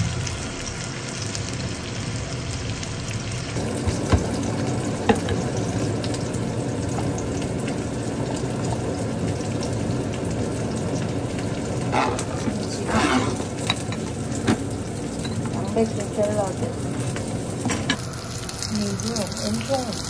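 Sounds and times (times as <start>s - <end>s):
food sizzling in frying pan: 0.0s - 20.0s
scrapes and spatters: 11.9s - 13.9s.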